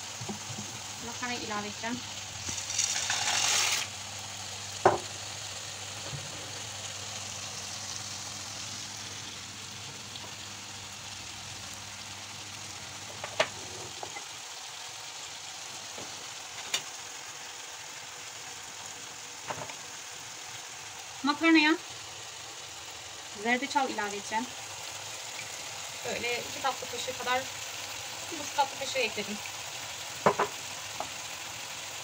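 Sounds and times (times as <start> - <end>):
chicken sizzling in oil: 0.0 - 32.0
water boiling in a pot: 0.0 - 32.0.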